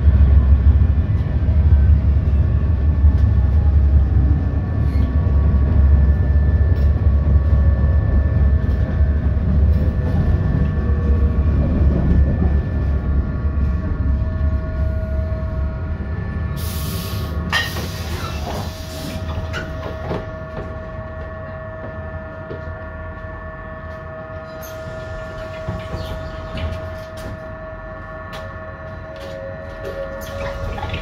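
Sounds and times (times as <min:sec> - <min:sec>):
equipment whine: 0:00.0 - 0:31.0
tram running rumble: 0:00.0 - 0:31.0
pneumatic doors hissing: 0:16.6 - 0:19.2.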